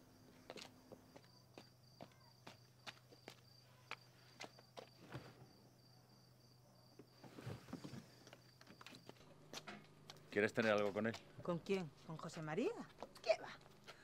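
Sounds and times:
crickets chirring: 0.0 - 13.8
high-heeled footsteps on pavement: 0.4 - 5.0.

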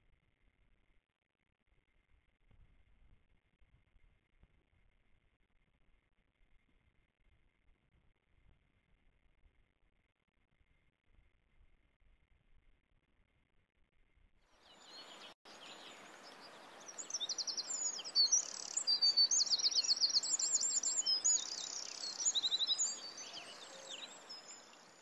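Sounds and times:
outdoor ambience hiss: 14.6 - 25.0
songbirds singing: 14.6 - 25.0.

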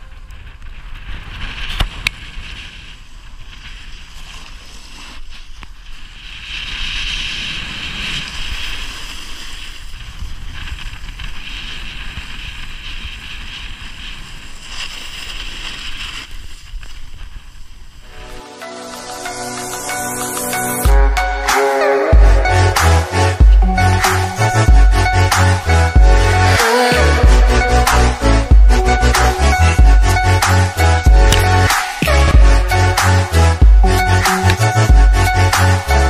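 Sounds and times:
wind rumbling on microphone: 0.0 - 18.4
snowboard scraping over snow: 0.0 - 20.7.

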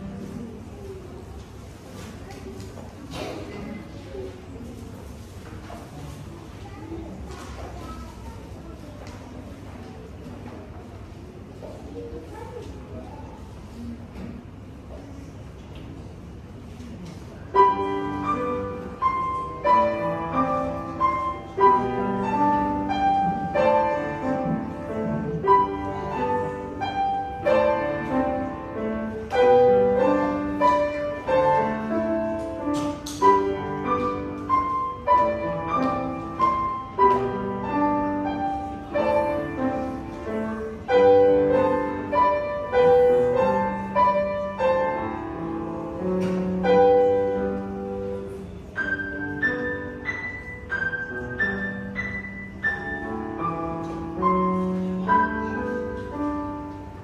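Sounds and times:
grand piano classical piece: 0.0 - 3.6, 16.9 - 57.0.

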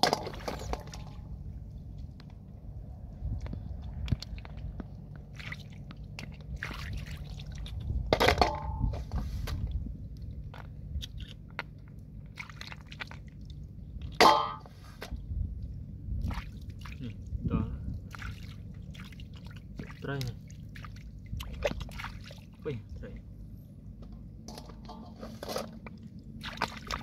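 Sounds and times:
low rumble: 0.0 - 12.4, 13.0 - 20.0
hands splashing in water and mud: 3.7 - 8.0, 10.4 - 14.4, 16.2 - 17.2, 18.0 - 22.7, 25.7 - 27.0
clank in metal bowl: 8.2 - 9.0, 14.2 - 14.7, 24.5 - 25.7.

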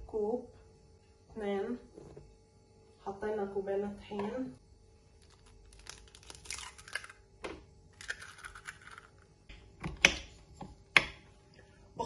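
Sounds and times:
eggshell crackling: 5.2 - 7.2, 7.9 - 9.3.

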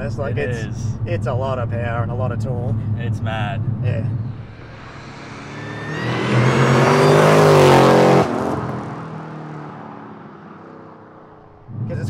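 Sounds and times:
car engine accelerating past: 4.2 - 11.9.

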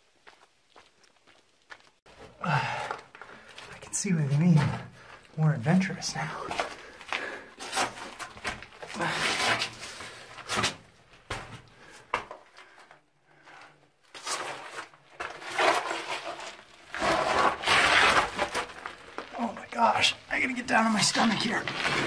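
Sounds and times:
clothes and boots scraping rock: 6.0 - 12.8, 13.4 - 22.0.

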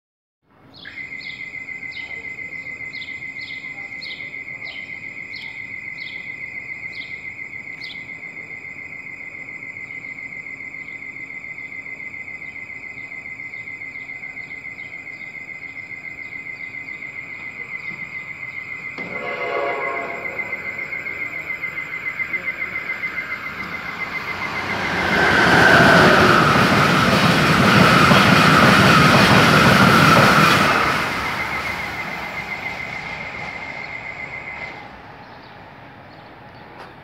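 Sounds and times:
bird chirping: 0.7 - 7.2, 33.4 - 36.9
crickets trilling: 0.7 - 37.0.

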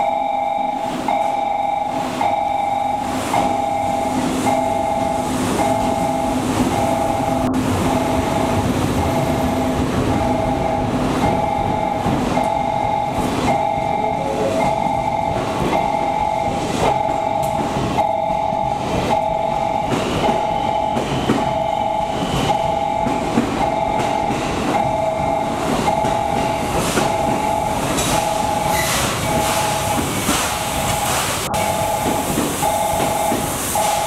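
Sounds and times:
two-tone warning chime: 0.0 - 30.0, 30.7 - 34.0
train rumbling and clattering: 0.0 - 34.0
steam hiss: 26.6 - 34.0.

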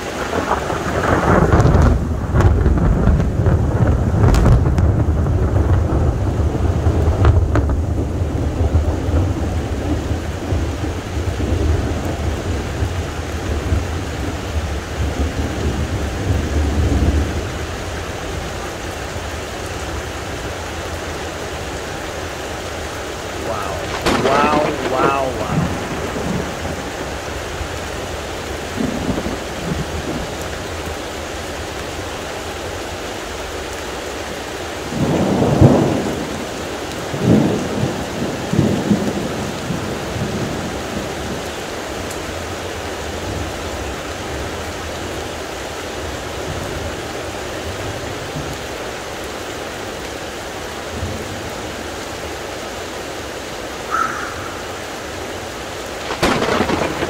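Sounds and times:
heavy rain falling: 0.0 - 57.0
thunder rumbling: 0.2 - 17.5, 23.3 - 30.7, 34.9 - 36.4, 56.0 - 57.0
sharp thunderclap: 0.3 - 9.4, 23.6 - 27.2, 56.0 - 57.0.

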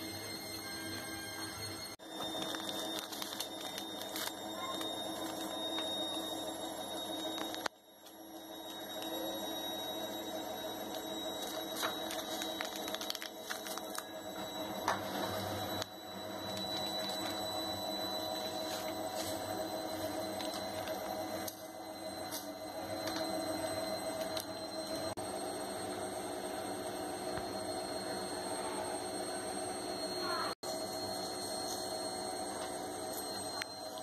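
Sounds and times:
steady hum: 0.0 - 34.0
paper sachet crinkling: 2.0 - 6.3, 10.8 - 14.3.

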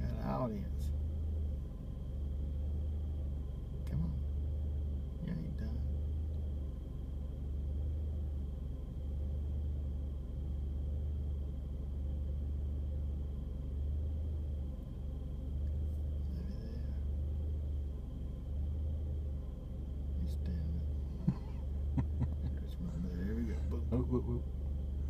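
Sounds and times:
car engine idling: 0.0 - 25.0.

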